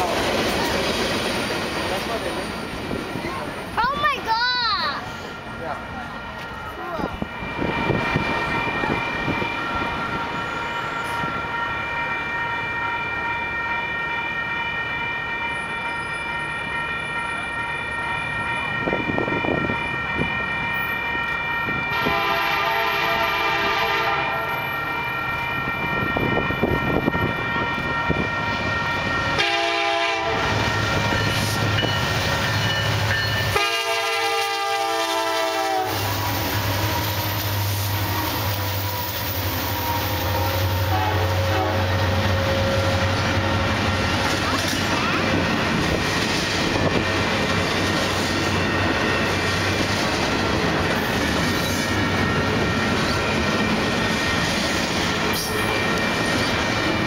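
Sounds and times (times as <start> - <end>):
diesel locomotive drone: 0.0 - 57.0
train horn blasts: 21.9 - 24.8, 29.4 - 30.7, 33.5 - 43.3.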